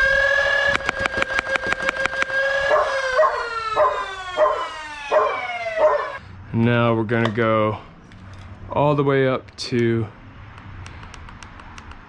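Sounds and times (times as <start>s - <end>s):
flywheel motors whining: 0.0s - 6.2s
dog barking: 2.7s - 6.2s.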